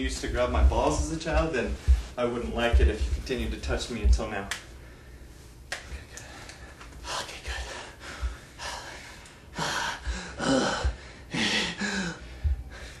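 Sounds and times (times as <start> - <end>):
person gasping and breathing: 7.6 - 13.0.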